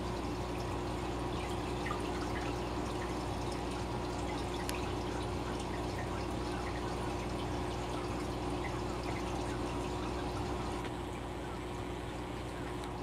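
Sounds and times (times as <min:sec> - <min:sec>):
aquarium water bubbling: 0:00.0 - 0:13.0
steady low hum: 0:00.0 - 0:13.0
water drips and pops: 0:01.4 - 0:06.8.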